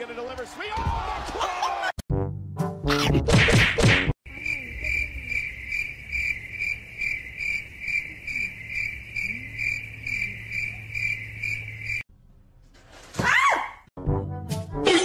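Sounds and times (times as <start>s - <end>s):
cricket chirping: 4.3s - 12.1s.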